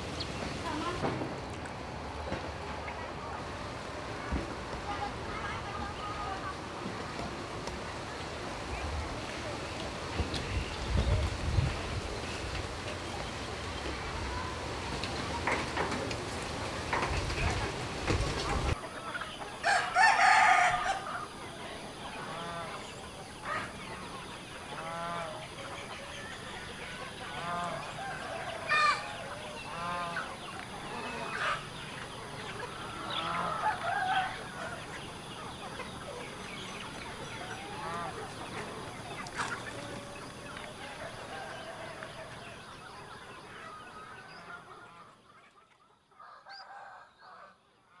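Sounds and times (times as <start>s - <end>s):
chickens clucking: 0.0s - 47.5s
rooster crowing: 19.6s - 21.4s, 27.4s - 30.2s, 33.0s - 34.9s, 40.9s - 42.6s, 46.2s - 47.6s.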